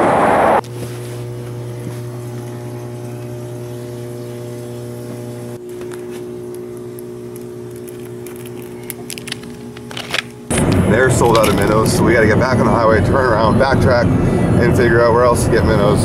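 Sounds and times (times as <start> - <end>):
machinery humming: 0.0 - 16.0.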